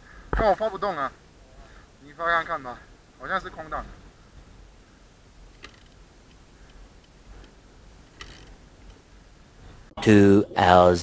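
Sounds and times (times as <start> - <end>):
background hiss: 0.0 - 11.0
faint clicks: 5.5 - 9.1.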